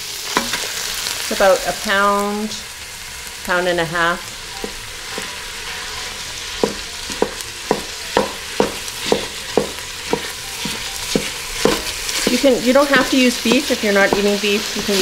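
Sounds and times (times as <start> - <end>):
meat and onions sizzling: 0.0 - 15.0
wooden spoon knocking on pot: 6.6 - 14.4.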